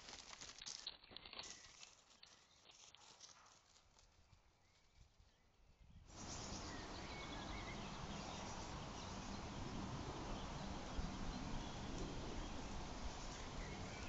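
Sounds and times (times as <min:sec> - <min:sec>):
faint bird chirps: 0:04.2 - 0:14.0
steady rushing hiss: 0:06.1 - 0:14.0.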